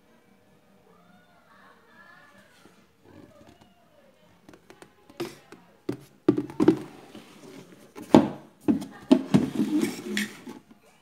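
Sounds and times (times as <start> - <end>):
plastic parts knocking: 4.5 - 7.0.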